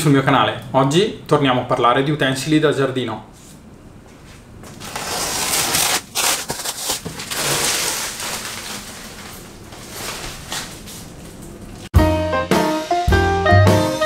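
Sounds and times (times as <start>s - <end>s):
stretch wrap crinkling and tearing: 4.7s - 10.8s.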